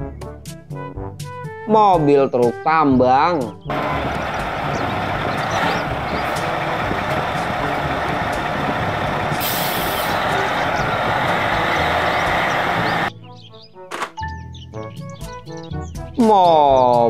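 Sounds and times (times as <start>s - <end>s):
truck diesel engine running: 3.7s - 13.1s
air brakes hiss: 9.4s - 13.1s.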